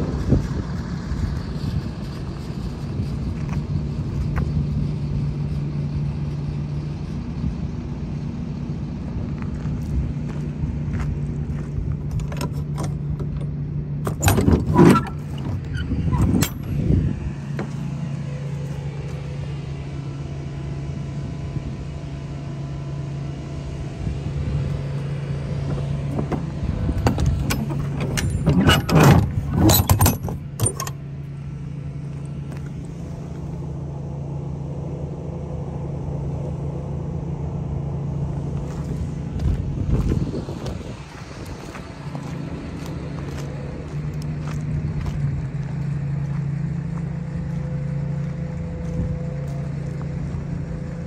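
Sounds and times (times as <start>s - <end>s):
diesel truck engine idling: 0.0s - 51.0s
metallic knocks and rattles: 12.0s - 16.9s, 25.6s - 31.1s.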